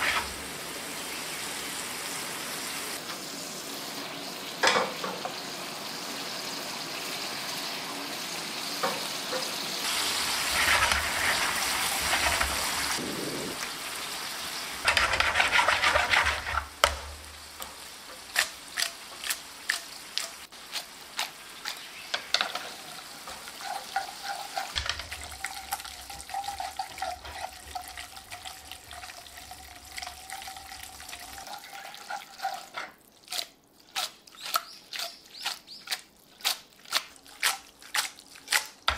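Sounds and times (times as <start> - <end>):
pasta sizzling in frying pan: 0.0 - 34.1.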